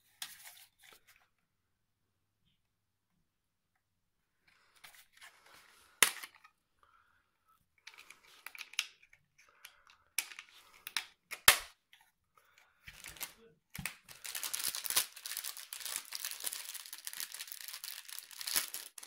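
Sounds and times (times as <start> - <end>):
plastic clicks: 7.8 - 12.1.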